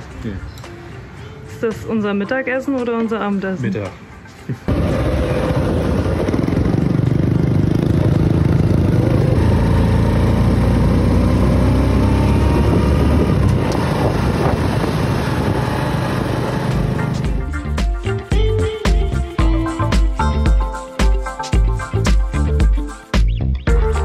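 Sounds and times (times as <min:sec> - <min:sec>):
wind rumble on microphone: 0:04.7 - 0:17.0
motorbike engine running: 0:04.7 - 0:17.6.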